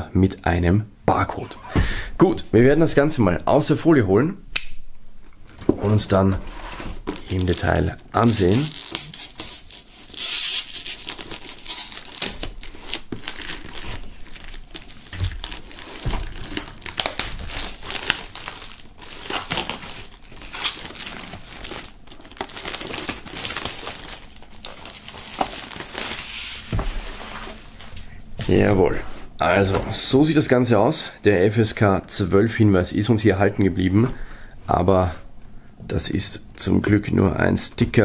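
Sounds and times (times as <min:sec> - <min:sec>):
plastic film crinkling and tearing: 0:07.0 - 0:28.0
knife slitting plastic film: 0:07.1 - 0:27.6.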